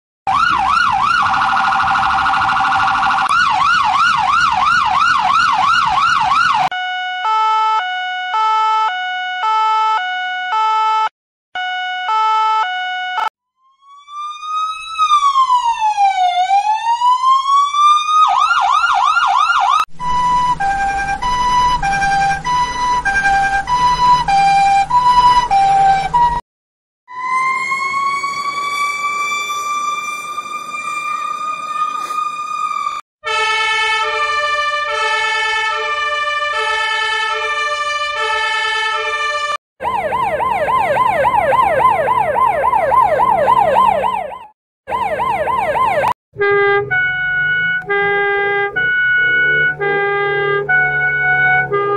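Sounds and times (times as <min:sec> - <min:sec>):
yelping siren sweeps: 0:00.3 - 0:11.1, 0:11.9 - 0:26.4, 0:27.1 - 0:51.9
two-note hi-lo siren: 0:00.3 - 0:26.4, 0:27.1 - 0:51.9
wailing siren: 0:00.3 - 0:26.4, 0:27.1 - 0:51.9
siren winding up: 0:12.1 - 0:16.7, 0:18.2 - 0:26.4, 0:27.1 - 0:33.0, 0:39.8 - 0:51.9.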